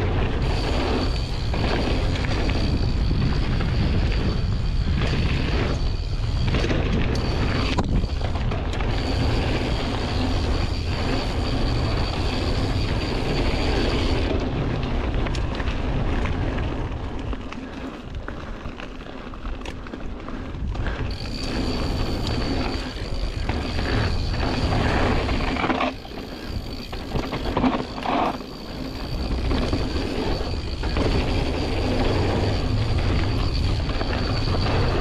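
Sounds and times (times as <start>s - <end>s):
tyres on gravel: 0.0s - 35.0s
wind buffeting microphone: 0.0s - 35.0s.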